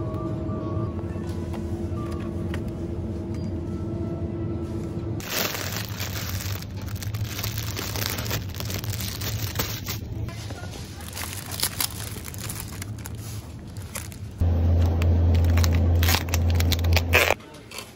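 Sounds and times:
plastic bag crinkling: 5.2s - 17.4s
low hum: 11.6s - 17.4s.

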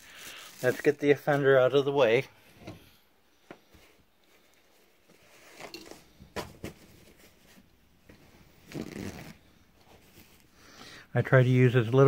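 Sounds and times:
paper towel rustling: 0.0s - 1.8s.

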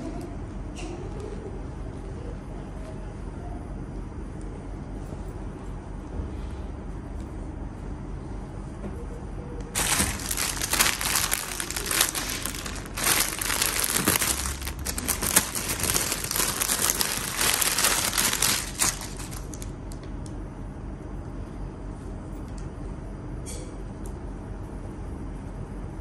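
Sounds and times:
plastic bag crinkling: 9.8s - 20.1s.

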